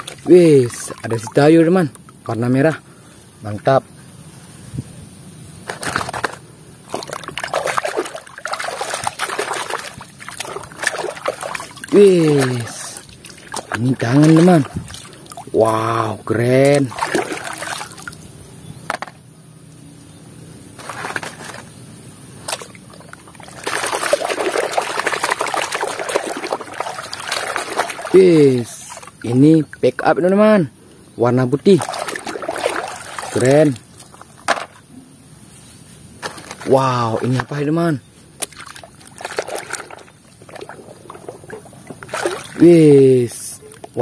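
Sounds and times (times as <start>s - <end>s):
water sloshing in a plastic tub: 0.0s - 2.5s, 5.7s - 18.3s, 22.4s - 30.6s, 31.2s - 34.9s, 36.2s - 44.0s.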